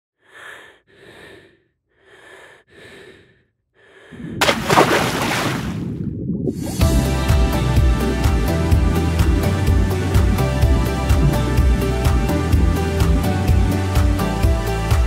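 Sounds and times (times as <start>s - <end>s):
churning water and bubbles: 4.2s - 14.0s
diver splashing into water: 4.4s - 5.9s.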